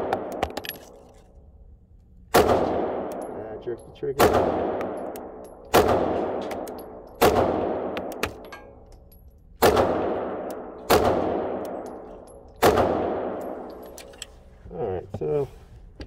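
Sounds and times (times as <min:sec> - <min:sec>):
pistol shots echoing indoors: 0:02.3 - 0:03.4, 0:04.2 - 0:08.8, 0:09.6 - 0:13.7.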